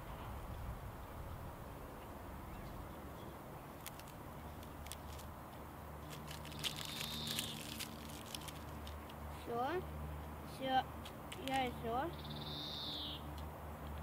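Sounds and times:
plastic candy wrapper crinkling: 3.8s - 5.3s, 6.0s - 9.2s, 11.4s - 11.7s.

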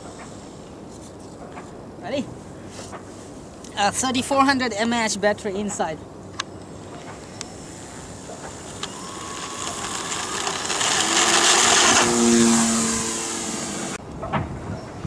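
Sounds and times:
electric motor and propeller: 7.1s - 14.4s.

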